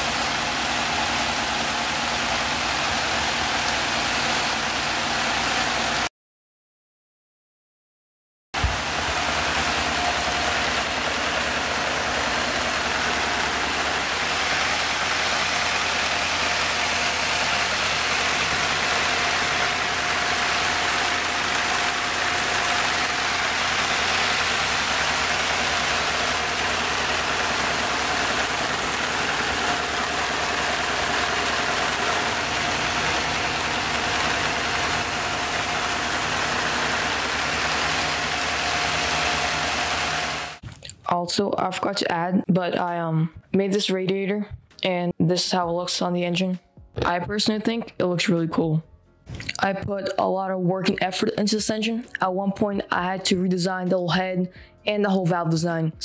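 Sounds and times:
vacuum cleaner rushing drone: 8.6 - 40.6.

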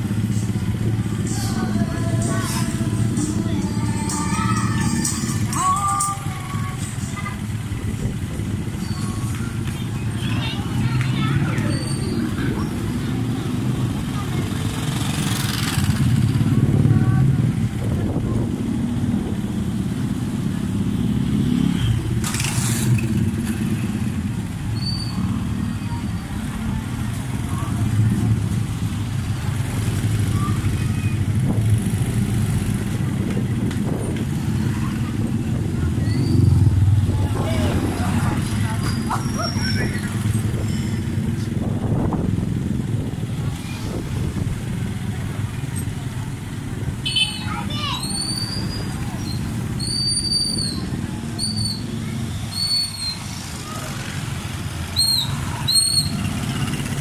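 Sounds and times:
vehicle engine and road rumble: 0.0 - 57.0
motorcycle engine running: 12.4 - 25.7, 56.0 - 57.0.

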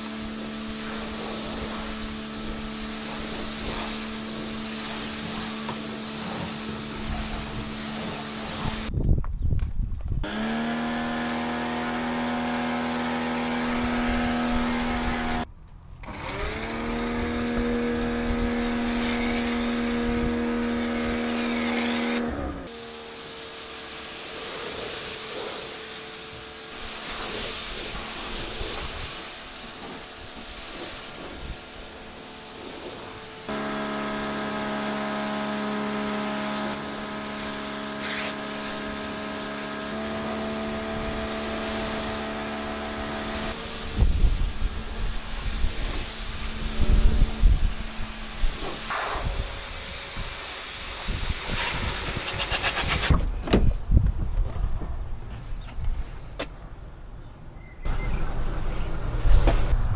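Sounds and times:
water spray hissing: 0.0 - 8.9, 21.0 - 53.0
pressure washer motor whining: 10.2 - 52.4.

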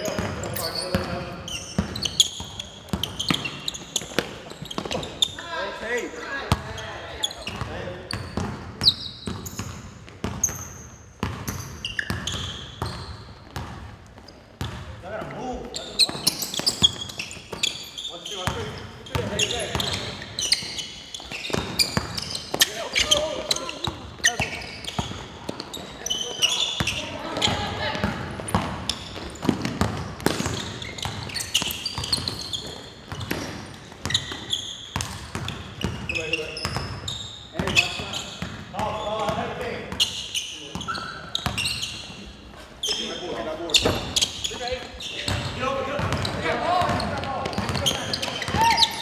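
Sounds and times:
sneakers squeaking: 0.0 - 49.0
basketball bouncing on wood floor: 11.2 - 14.9, 21.2 - 25.6, 26.8 - 32.4, 33.1 - 37.0, 45.3 - 48.8.

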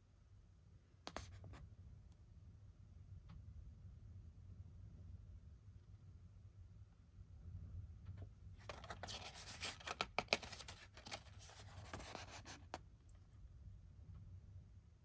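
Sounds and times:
packaging rustling: 8.6 - 12.8.

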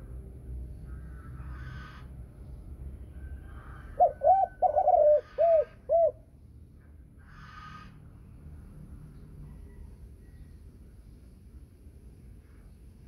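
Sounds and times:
dove cooing: 3.8 - 6.2.

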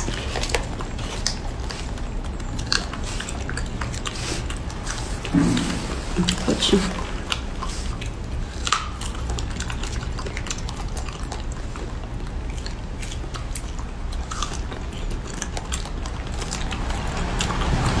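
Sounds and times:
biting and chewing strawberries: 0.0 - 18.0
low steady hum: 0.0 - 18.0.

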